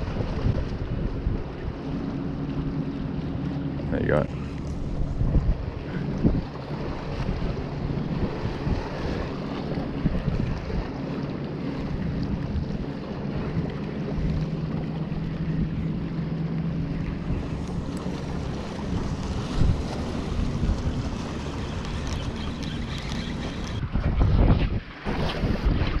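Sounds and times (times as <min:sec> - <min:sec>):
waves washing against rocks: 0:00.0 - 0:01.4, 0:17.1 - 0:23.9
wind buffeting microphone: 0:00.0 - 0:26.0.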